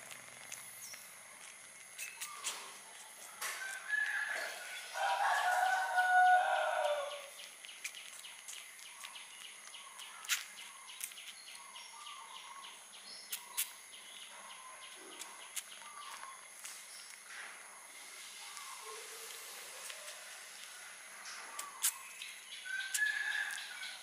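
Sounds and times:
soft chirps: 0:00.0 - 0:17.3, 0:17.9 - 0:24.0
rooster crowing: 0:03.4 - 0:07.4, 0:22.7 - 0:24.0.

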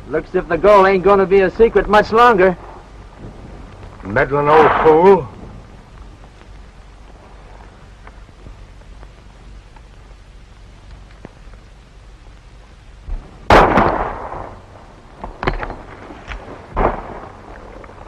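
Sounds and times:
gunshot with echo: 0:13.5 - 0:14.6, 0:16.8 - 0:17.3.

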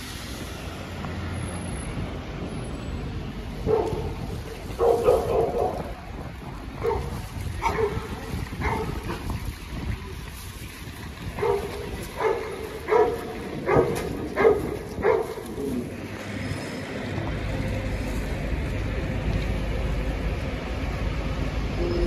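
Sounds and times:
large dog barking: 0:03.6 - 0:04.1, 0:04.8 - 0:05.9, 0:06.8 - 0:09.2, 0:11.4 - 0:15.4
low rumble: 0:15.8 - 0:22.0.

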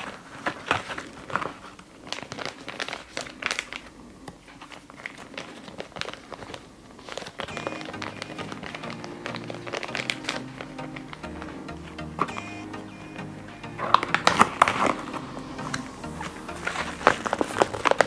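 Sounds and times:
packaging crinkling: 0:00.0 - 0:11.2, 0:16.6 - 0:18.0
soft background music: 0:07.5 - 0:18.0.

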